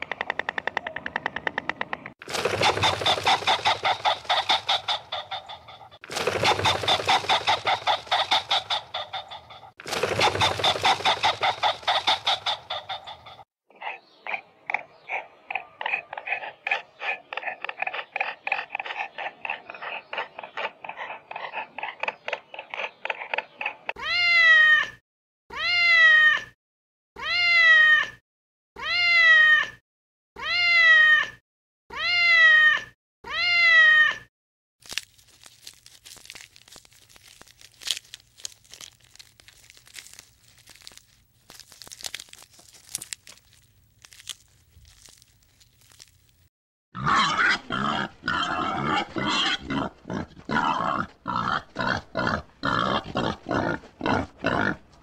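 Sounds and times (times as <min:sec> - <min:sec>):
faint crunching and clicking: 0:34.8 - 0:46.5
pig grunting: 0:47.0 - 0:55.0.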